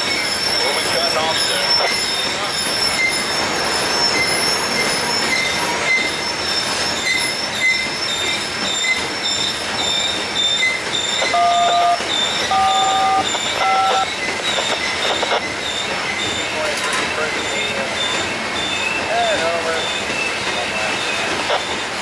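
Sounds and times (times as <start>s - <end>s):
high wheel squealing: 0.0s - 22.0s
train wheels rumbling on rails: 0.0s - 22.0s.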